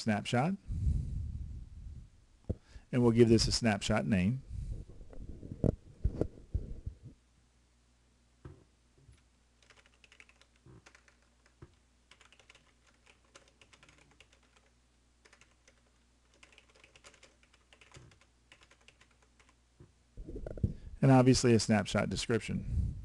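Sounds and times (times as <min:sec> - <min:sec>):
low steady hum: 0:00.0 - 0:23.0
computer keyboard typing: 0:09.6 - 0:19.6.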